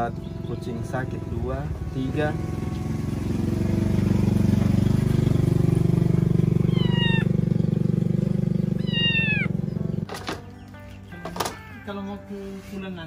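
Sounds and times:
small engine running: 0.0s - 11.2s
kitten meowing: 6.6s - 7.4s, 8.7s - 9.6s.

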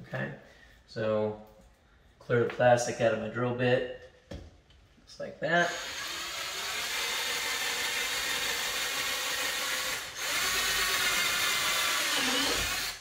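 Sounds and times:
power drill boring through plastic: 5.7s - 13.0s.

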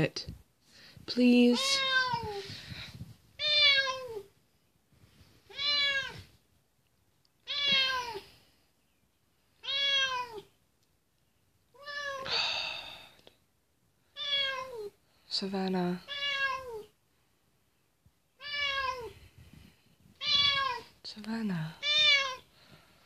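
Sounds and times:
cat meowing: 1.6s - 2.4s, 3.4s - 4.3s, 5.5s - 6.3s, 7.4s - 8.3s, 9.6s - 10.5s, 11.7s - 12.3s, 14.2s - 14.9s, 16.1s - 16.9s, 18.4s - 19.2s, 20.2s - 20.9s, 21.8s - 22.5s.

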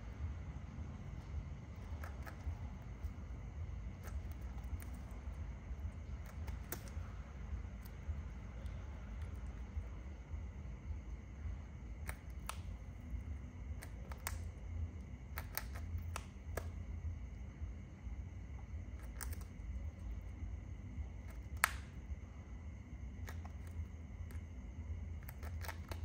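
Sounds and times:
steady low hum: 0.0s - 26.0s
bird beak clicks and snips: 1.8s - 3.1s, 3.9s - 5.2s, 6.2s - 7.0s, 12.0s - 13.1s, 13.8s - 14.5s, 15.3s - 16.8s, 19.0s - 20.1s, 21.2s - 22.0s, 23.2s - 24.4s, 25.2s - 26.0s.

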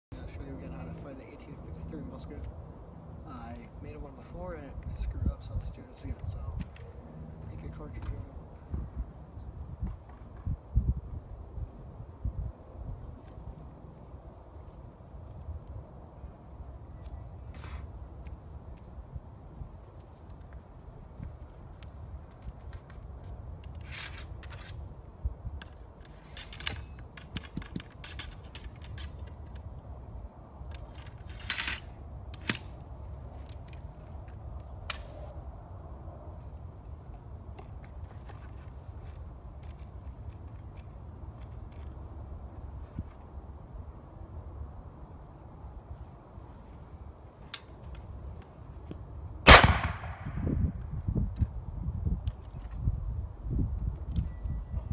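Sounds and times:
wind buffeting microphone: 3.7s - 14.3s, 49.5s - 54.9s
ramrod clinking and scraping: 23.6s - 24.8s, 25.6s - 29.6s, 30.6s - 32.6s
rifle metallic clicks and rattles: 25.6s - 29.8s, 30.7s - 32.8s, 39.6s - 42.0s.

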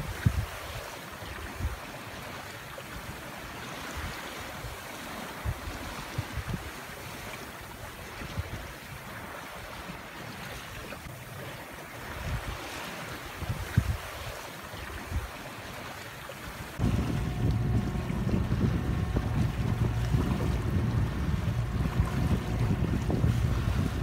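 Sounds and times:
wind buffeting microphone: 0.0s - 1.9s, 3.9s - 6.8s, 12.0s - 15.4s, 16.6s - 24.0s
sea washing against boat hull: 0.0s - 24.0s
wind hiss: 16.6s - 24.0s.

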